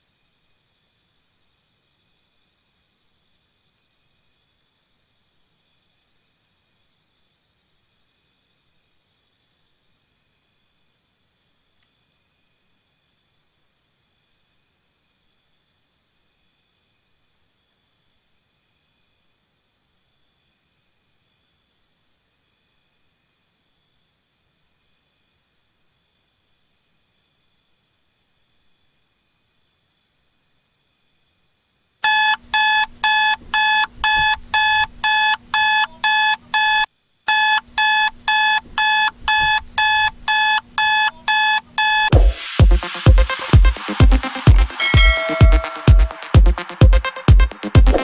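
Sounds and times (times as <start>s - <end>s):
alarm clock beeping: 32.0s - 48.0s.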